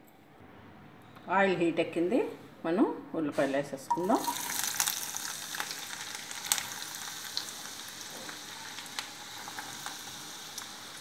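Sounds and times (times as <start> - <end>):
onions sizzling in hot oil: 3.9 - 11.0.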